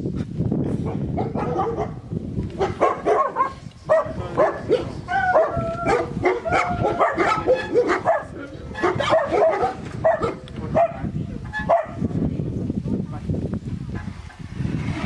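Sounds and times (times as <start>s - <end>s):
dogs barking and yipping: 0.8s - 12.0s
dogs whining: 4.7s - 10.2s.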